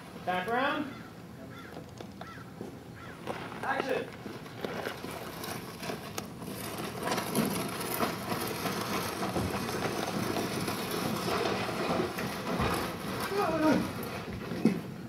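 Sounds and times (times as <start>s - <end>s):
cloth scraping over dirt: 3.2s - 15.0s.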